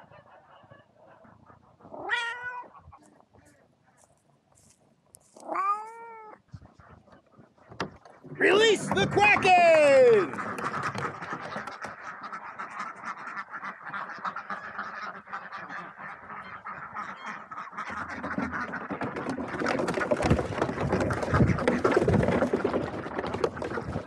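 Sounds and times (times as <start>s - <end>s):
ducks quacking: 0.0s - 4.1s, 6.4s - 24.0s
camera rubbing and knocking: 10.3s - 12.3s, 17.8s - 24.0s.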